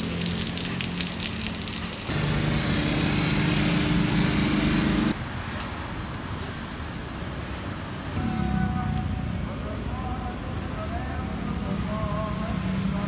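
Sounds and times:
rain falling: 0.0s - 2.4s
passing traffic: 0.0s - 13.0s
vehicle engine running close: 2.1s - 5.2s.

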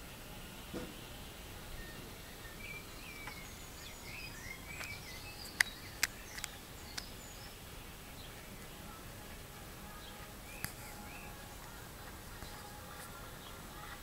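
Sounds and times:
faint high chirping calls: 0.0s - 14.0s
outdoor background hiss: 0.0s - 14.0s
sharp clicks: 4.6s - 7.2s.

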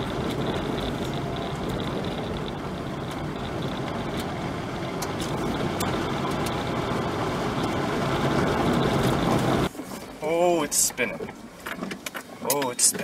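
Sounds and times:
low hum: 0.0s - 10.2s
vehicle road and engine noise: 0.0s - 13.0s.

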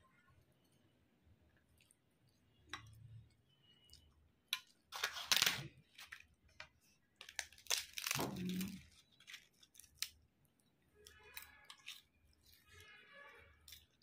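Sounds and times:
crisp papad cracking by hand: 7.2s - 10.2s.

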